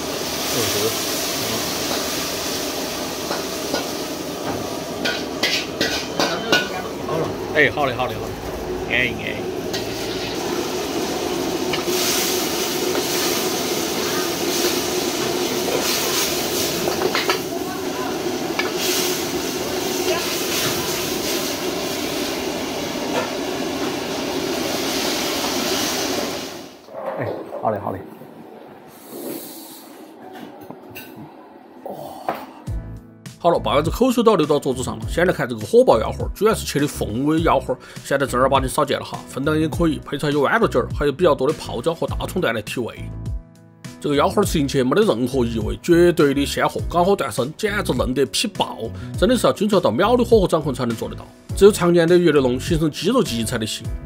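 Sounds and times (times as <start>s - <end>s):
light sizzling: 0.0s - 26.8s
gas burner roaring: 0.0s - 27.0s
stove fire rushing: 0.0s - 28.0s
metal spatula scraping a wok: 5.0s - 6.9s, 9.7s - 10.4s.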